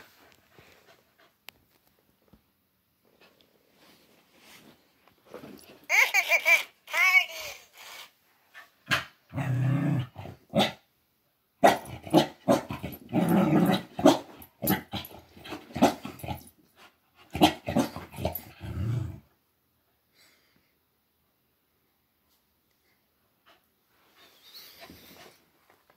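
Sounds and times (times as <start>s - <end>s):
dog growling and barking: 8.9s - 10.9s, 11.6s - 16.5s, 17.2s - 19.3s.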